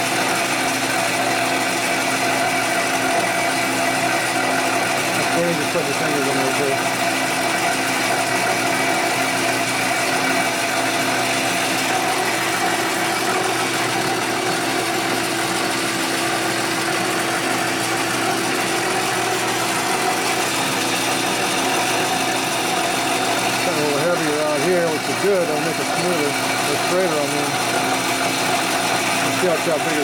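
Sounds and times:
metal lathe gears whining: 0.0 - 30.0.

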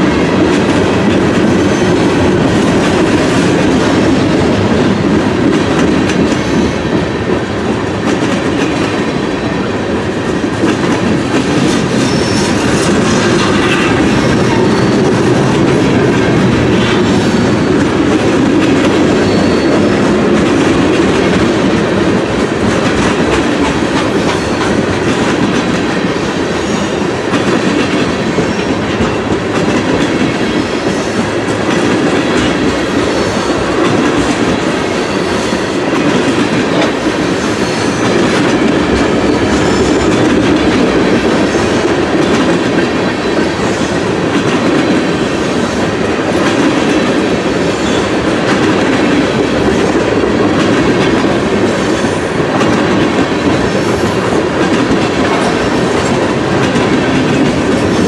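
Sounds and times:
rumble of wheels on rail: 0.0 - 58.0
train wheels clickety-clack: 0.0 - 58.0.

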